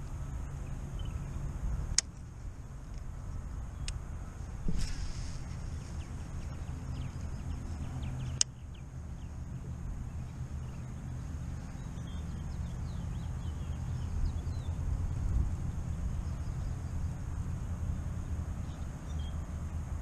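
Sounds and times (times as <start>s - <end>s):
small birds chirping: 0.0s - 2.3s, 3.0s - 20.0s
steady low rumble: 0.0s - 20.0s.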